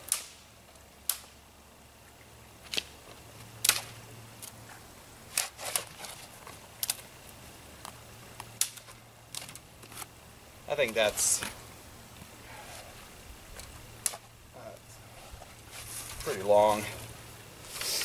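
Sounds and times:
dry wood snapping: 0:00.0 - 0:01.4, 0:02.6 - 0:04.6, 0:05.3 - 0:07.1, 0:07.8 - 0:10.1, 0:13.5 - 0:14.3.

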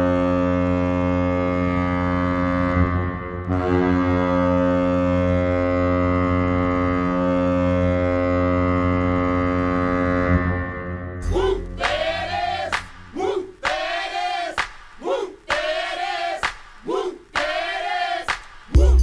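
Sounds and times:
ice hockey goal horn blasts: 0:00.0 - 0:12.4.

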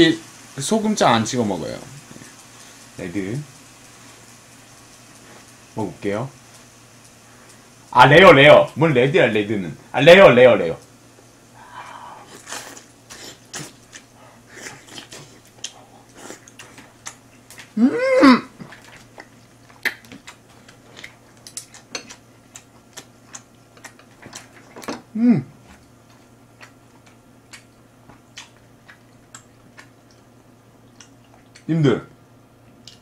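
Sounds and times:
man humming: 0:11.6 - 0:12.4, 0:17.7 - 0:18.6, 0:25.1 - 0:25.6
man chewing with mouth smacks: 0:11.9 - 0:31.7, 0:32.6 - 0:33.0.

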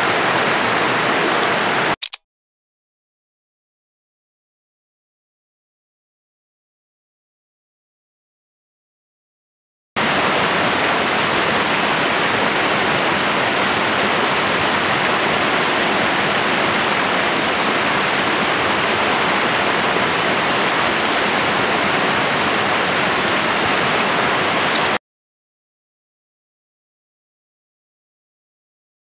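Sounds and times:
stream rushing over stones: 0:00.0 - 0:02.0, 0:10.0 - 0:25.0.

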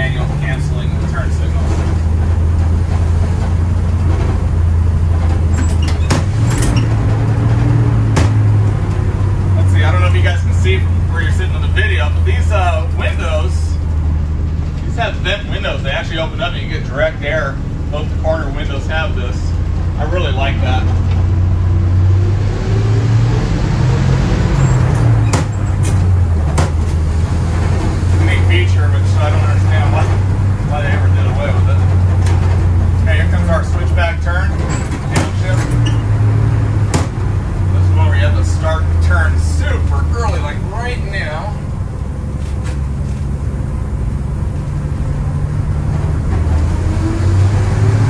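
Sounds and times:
bus engine droning: 0:00.0 - 0:48.0
sharp knocks or rattles: 0:01.7 - 0:09.2, 0:24.7 - 0:27.9, 0:34.5 - 0:37.4.

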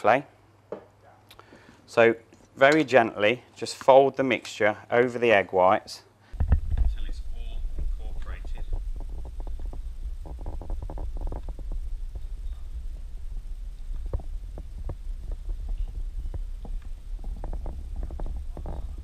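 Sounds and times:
steady low hum: 0:06.3 - 0:19.0.

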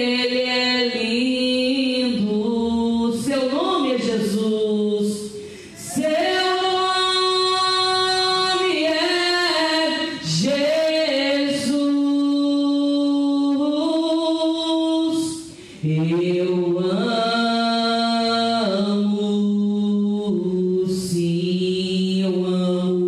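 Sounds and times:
woman singing unaccompanied: 0:00.0 - 0:23.0.

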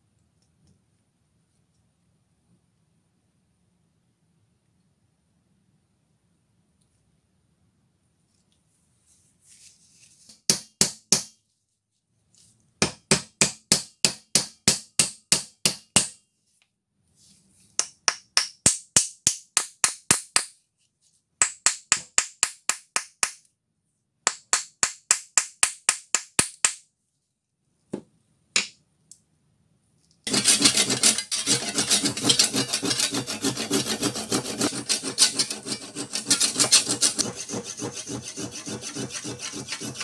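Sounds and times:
saw cutting wood: 0:30.3 - 0:40.0.

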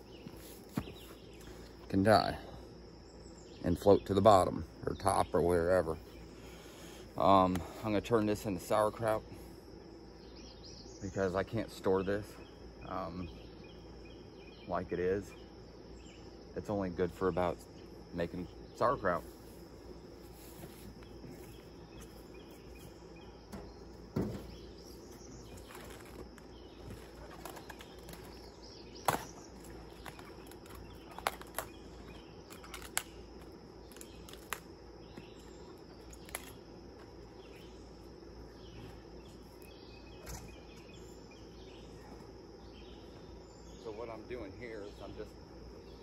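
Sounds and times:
insects chirring: 0:00.0 - 0:46.0
leaves rustling: 0:19.0 - 0:38.0
cabbage leaves snapping: 0:27.2 - 0:31.8, 0:32.4 - 0:34.8, 0:36.1 - 0:36.6.

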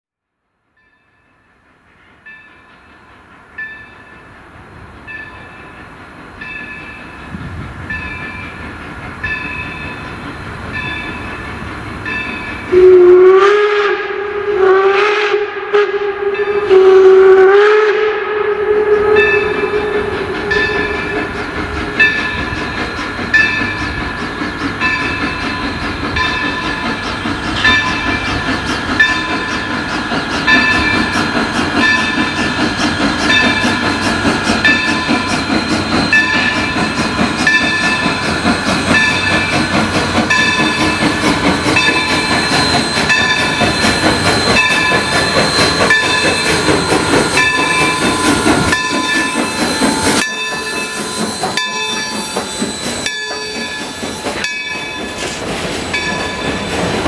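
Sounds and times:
locomotive bell ringing: 0:00.7 - 0:04.4, 0:05.0 - 0:13.0, 0:16.2 - 0:16.8, 0:18.9 - 0:57.0
steam whistle blasts: 0:12.7 - 0:22.5, 0:40.3 - 0:55.0
locomotive running rumble: 0:15.9 - 0:57.0.

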